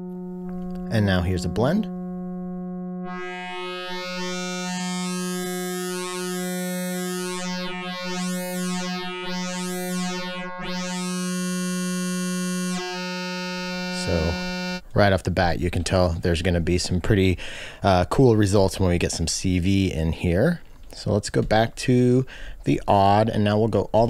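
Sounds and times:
synthesizer tone with shifting harmonics: 0:00.0 - 0:14.8.

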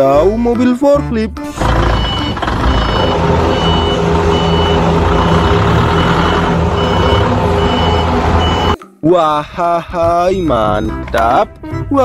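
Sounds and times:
forklift engine running: 0:01.4 - 0:08.8
back-up alarm beeping: 0:01.8 - 0:08.8.

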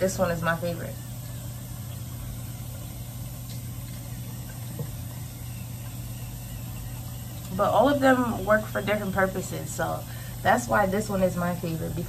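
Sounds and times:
electric cleansing brush humming: 0:00.0 - 0:12.0.

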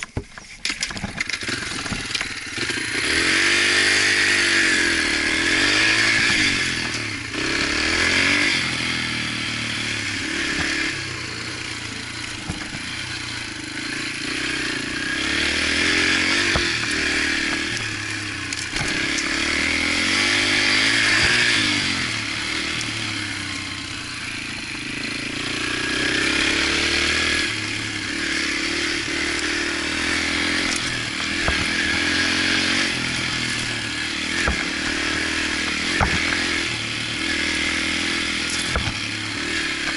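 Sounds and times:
dirt bike engine revving: 0:00.8 - 0:39.9
bike knocking over bumps: 0:30.5 - 0:31.8, 0:34.3 - 0:36.7, 0:38.5 - 0:39.1.

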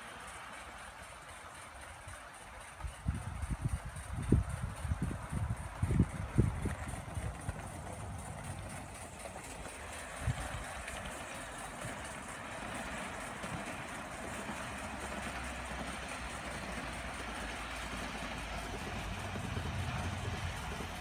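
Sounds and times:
hiss of steam and exhaust: 0:08.2 - 0:21.0.

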